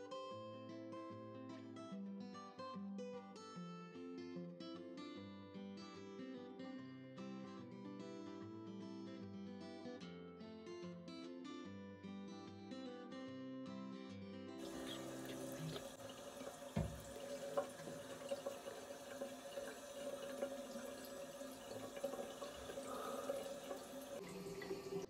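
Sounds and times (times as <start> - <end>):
strummed guitar music: 0.0 - 16.0
tap water running into sink: 14.6 - 25.0.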